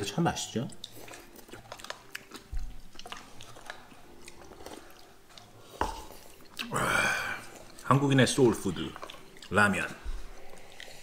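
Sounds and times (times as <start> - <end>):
wet chewing: 0.0 - 11.0
slurping and sipping broth: 8.6 - 11.0.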